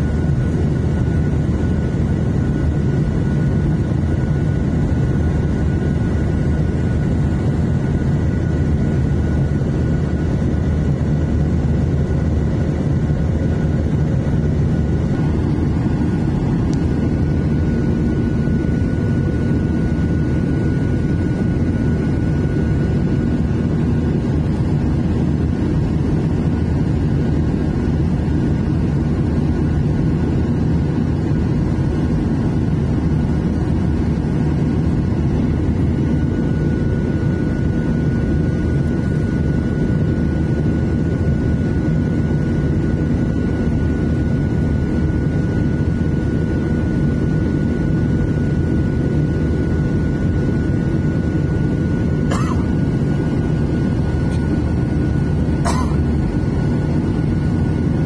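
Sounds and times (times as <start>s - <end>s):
jet engine rumble in cabin: 0.0s - 58.0s.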